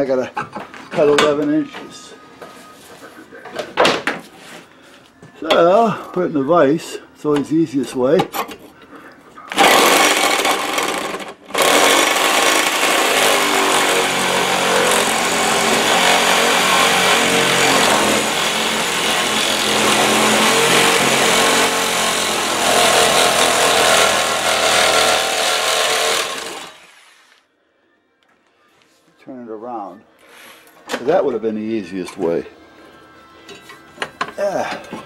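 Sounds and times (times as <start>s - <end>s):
reciprocating saw cutting steel: 11.5s - 27.3s.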